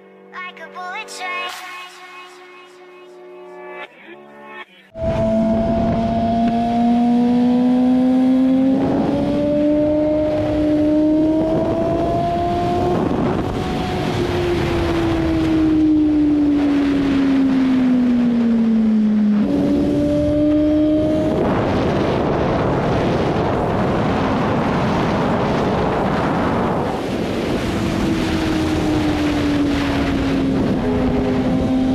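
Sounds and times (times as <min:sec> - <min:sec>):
motorcycle engine at speed: 0:05.0 - 0:31.9
wind noise: 0:08.7 - 0:31.9.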